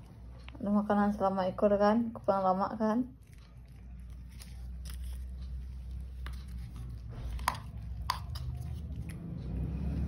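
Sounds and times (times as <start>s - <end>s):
cat chewing and licking: 3.2s - 10.0s.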